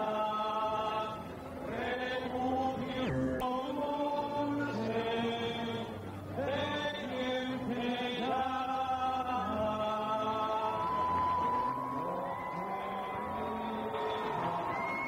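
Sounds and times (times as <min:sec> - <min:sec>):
choir singing a hymn: 0:00.0 - 0:15.0.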